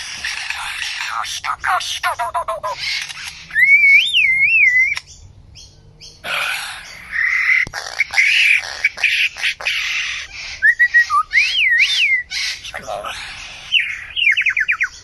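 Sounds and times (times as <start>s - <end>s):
bird harsh rasping calls: 0.0s - 15.0s
bird sharp click: 2.9s - 3.4s, 4.9s - 5.2s.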